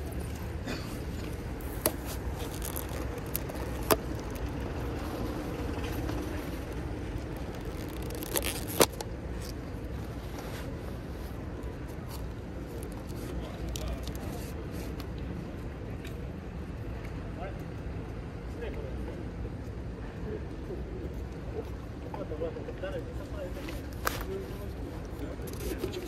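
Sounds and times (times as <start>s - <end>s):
low street hum: 0.0s - 26.0s
plastic tube clicks and scrapes: 1.2s - 9.6s.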